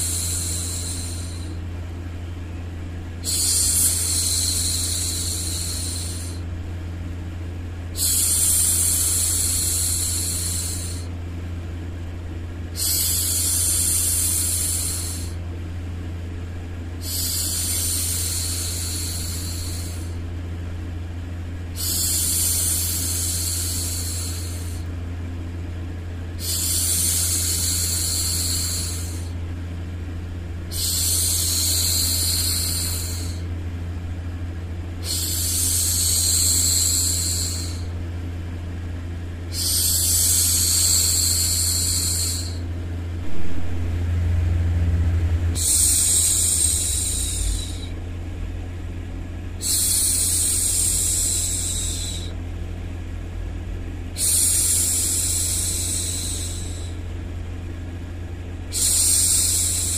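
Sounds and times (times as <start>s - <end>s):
low drone: 0.0s - 1.7s, 3.1s - 6.5s, 7.9s - 11.1s, 12.7s - 15.4s, 17.0s - 20.2s, 21.7s - 24.9s, 26.3s - 29.4s, 30.6s - 33.5s, 34.9s - 38.0s, 39.4s - 52.4s, 54.1s - 57.1s, 58.6s - 59.9s
woman shushing: 43.3s - 48.0s, 49.6s - 52.4s, 54.2s - 57.0s, 58.7s - 59.9s.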